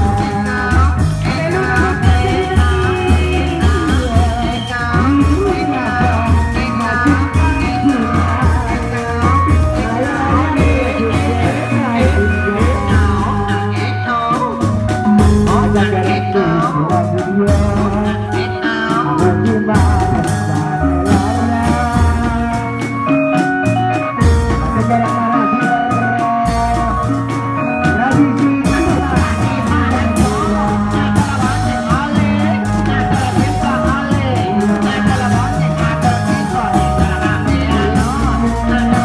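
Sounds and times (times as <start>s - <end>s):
person singing: 0.0s - 39.0s
wavering melody: 0.0s - 39.0s.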